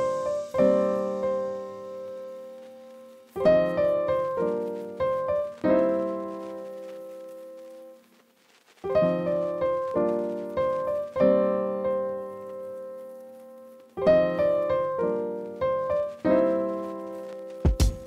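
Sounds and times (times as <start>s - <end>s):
piano music: 0.0s - 8.0s, 8.9s - 18.0s.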